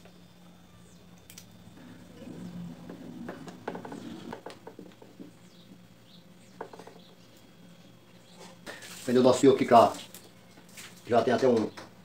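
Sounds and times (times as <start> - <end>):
steady low hum: 0.0 - 12.0
rustling of wire: 8.3 - 11.6.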